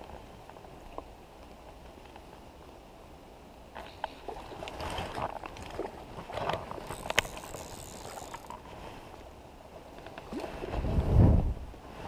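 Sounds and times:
fishing reel clicks: 6.9 - 8.6.

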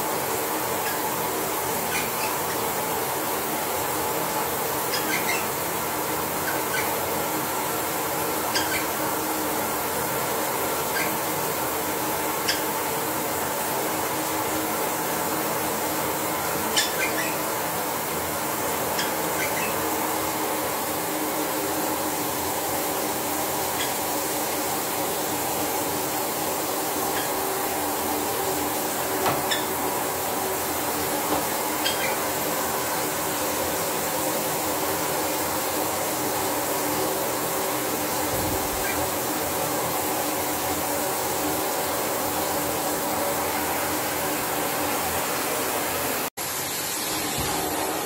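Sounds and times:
steady rushing hiss: 0.0 - 48.0
parrots chirping: 0.7 - 2.8, 4.7 - 7.2, 8.4 - 9.1, 10.8 - 11.5, 12.3 - 12.8, 16.4 - 17.7, 18.8 - 20.0, 23.6 - 24.2, 27.0 - 27.7, 28.8 - 32.9.

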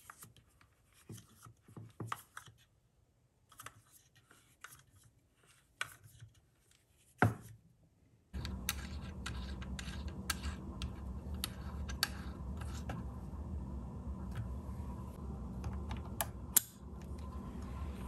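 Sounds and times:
hex key ticking and scraping: 8.4 - 12.9
steady low hum: 8.4 - 18.0.

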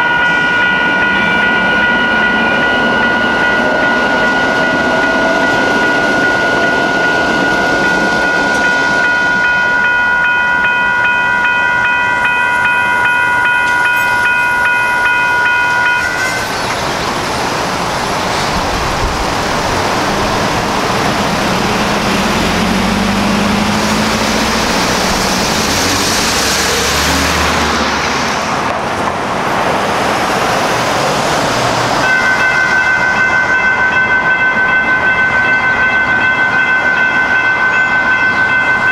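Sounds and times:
crossing warning bells ringing: 0.0 - 29.2, 30.5 - 38.9
train wheels rushing over rails: 12.2 - 38.9.

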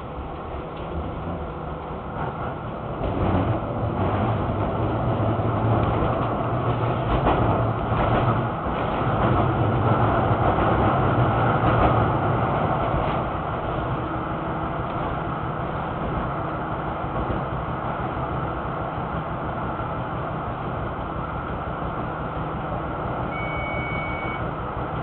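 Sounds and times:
low motor hum: 0.0 - 19.8
tram wheels rumbling on rails: 0.0 - 25.0.

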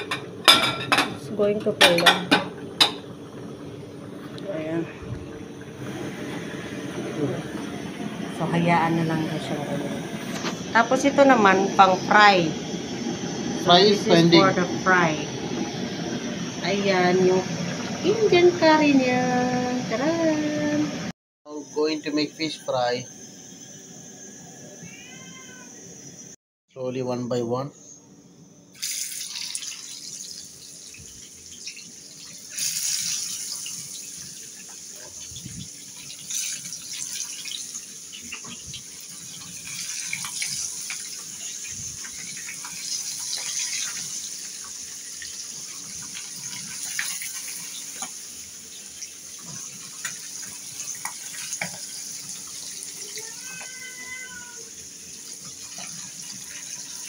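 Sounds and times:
fish frying in oil: 28.8 - 57.0.

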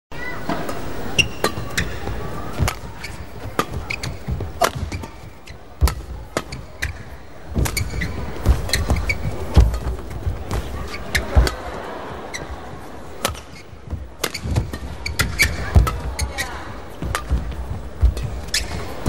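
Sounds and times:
arena background noise: 0.1 - 19.0
racket striking shuttlecock: 0.5 - 9.9, 13.2 - 13.6, 14.2 - 16.2, 17.0 - 18.9
shoe squeaks on court: 1.2 - 11.6, 13.2 - 17.4, 18.2 - 19.0.

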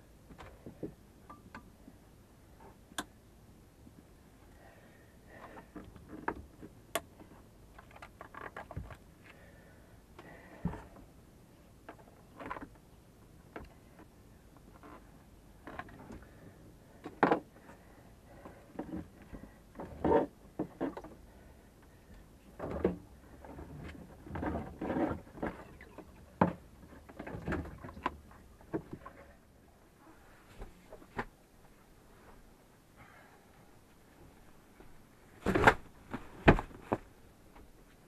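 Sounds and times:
rubber hoses knocking and scraping: 5.4 - 9.0, 18.3 - 21.2, 22.6 - 29.3.

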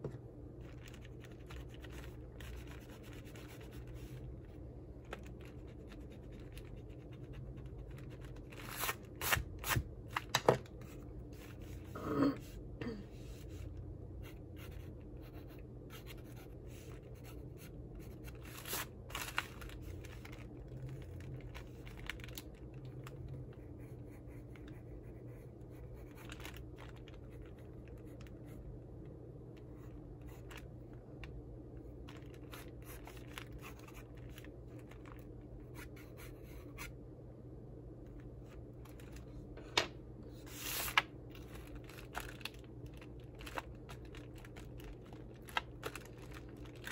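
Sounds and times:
steady low hum: 0.0 - 46.9
pencil scratching on paper: 1.8 - 4.2.

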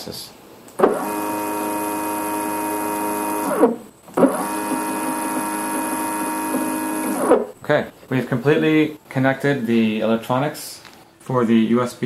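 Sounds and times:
stepper motor whine: 0.8 - 7.5.

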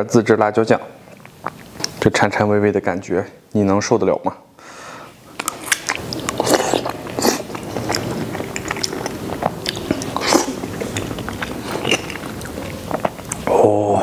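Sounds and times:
man chewing food: 1.0 - 2.0, 5.2 - 13.5
mouth clicks: 1.1 - 2.0, 5.4 - 13.6.

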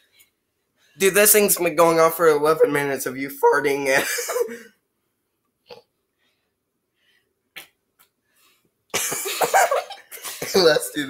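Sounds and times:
person speaking: 1.0 - 4.7, 10.2 - 11.0.

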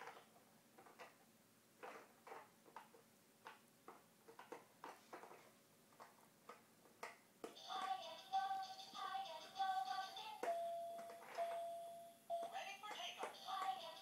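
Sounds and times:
plastic toy clicks and knocks: 1.8 - 5.4.

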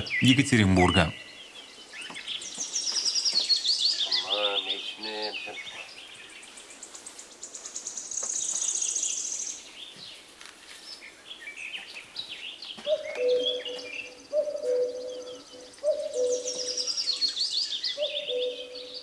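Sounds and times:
bird low steady call: 3.8 - 6.0, 12.8 - 19.0.

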